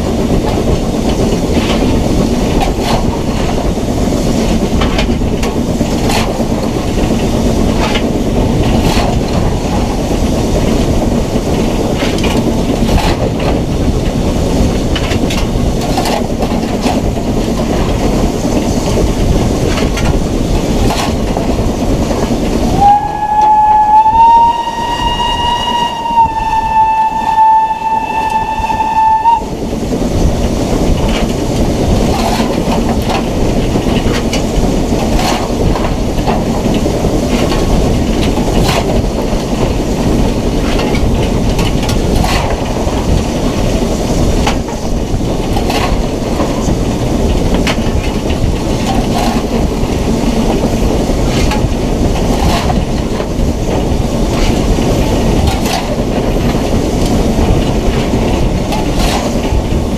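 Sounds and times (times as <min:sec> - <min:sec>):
steam locomotive running: 0:00.0 - 0:59.9
wheels clicking over rail joints: 0:00.0 - 0:59.9
steam whistle: 0:22.7 - 0:29.5.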